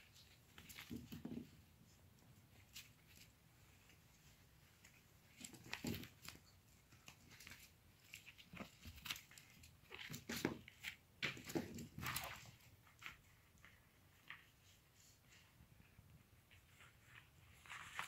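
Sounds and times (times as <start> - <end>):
puppy scuffling with a glove: 16.5 - 18.0.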